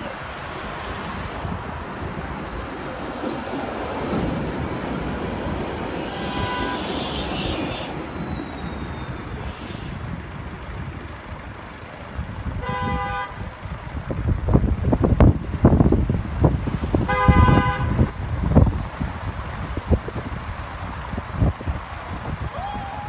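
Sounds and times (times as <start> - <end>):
traffic noise: 0.0 - 23.0
tram rumbling past: 0.0 - 23.0
tram horn toot: 5.9 - 10.2, 12.6 - 13.6, 17.1 - 18.2.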